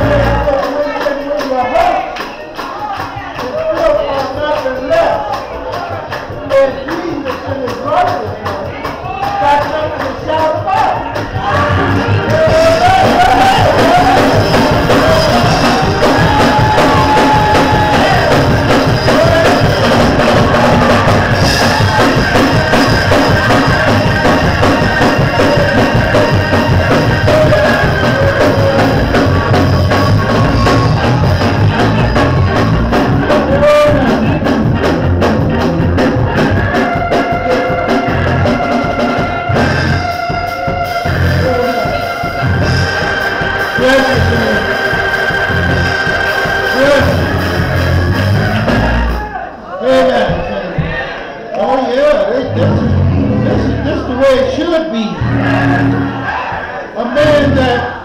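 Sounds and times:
organ playing: 0:00.0 - 0:02.1, 0:03.4 - 0:50.7, 0:52.0 - 0:58.0
drums: 0:00.0 - 0:51.2, 0:52.4 - 0:58.0
voices singing: 0:10.6 - 0:49.2, 0:52.4 - 0:58.0.

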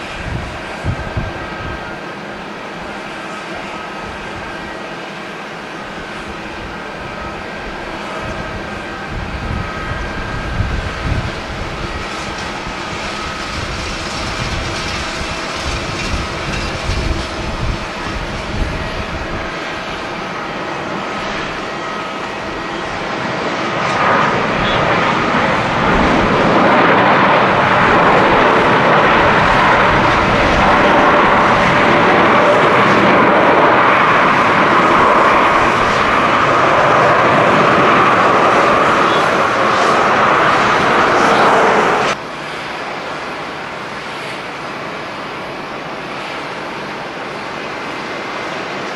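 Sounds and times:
jet engine reverse thrust roar: 0:00.0 - 0:48.9
jet engines whining: 0:00.0 - 0:48.9
wind rumbling on microphone: 0:00.0 - 0:48.9.

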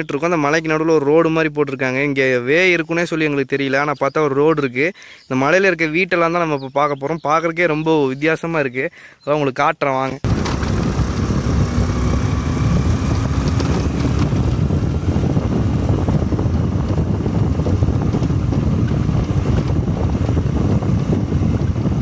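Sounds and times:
scooter engine running: 0:10.2 - 0:22.0
wind rushing over microphone: 0:10.2 - 0:22.0.

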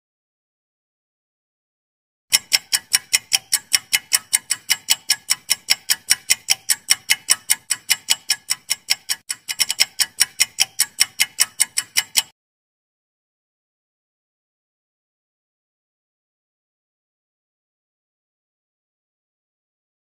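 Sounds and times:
fast clock ticking: 0:02.3 - 0:12.4.

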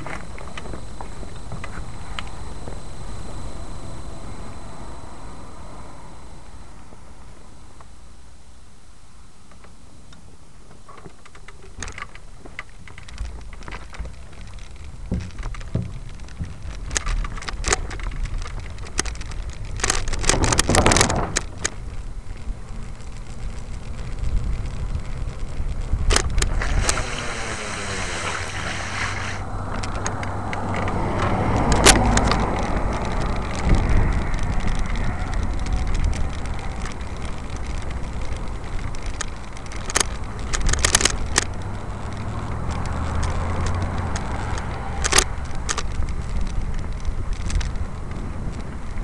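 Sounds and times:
wind rumbling on microphone: 0:00.0 - 0:08.0, 0:10.0 - 0:49.0
camera handling clicks and rattles: 0:11.0 - 0:21.8, 0:26.0 - 0:28.7, 0:29.8 - 0:47.8.

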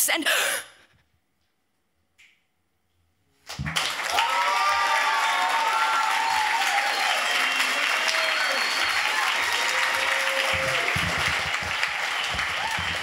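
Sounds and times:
audience applause: 0:03.5 - 0:13.0.

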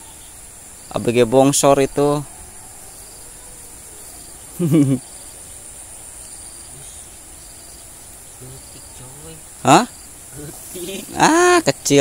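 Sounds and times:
high-pitched insect chirring: 0:00.0 - 0:12.0
person exclaiming: 0:10.8 - 0:11.7.

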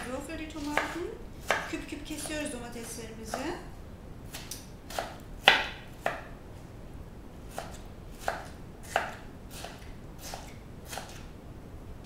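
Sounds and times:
knife chopping on wooden board: 0:00.6 - 0:02.3, 0:04.3 - 0:06.3, 0:07.5 - 0:11.2.

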